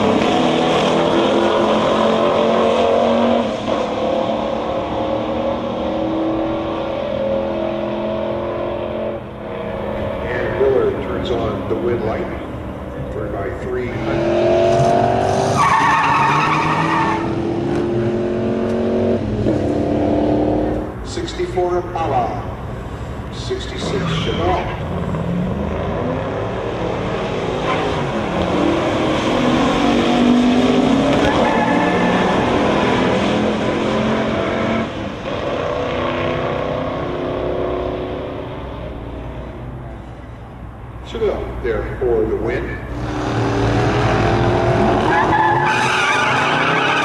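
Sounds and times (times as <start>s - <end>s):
car engine accelerating: 0.0s - 21.0s, 42.7s - 47.0s
tire squeal: 15.5s - 17.4s, 23.9s - 24.9s, 31.0s - 32.5s, 44.9s - 47.0s.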